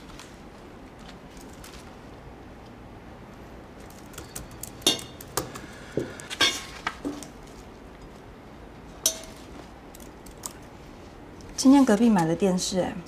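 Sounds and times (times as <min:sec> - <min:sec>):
metal tongs clinking on glass: 0:04.7 - 0:05.3.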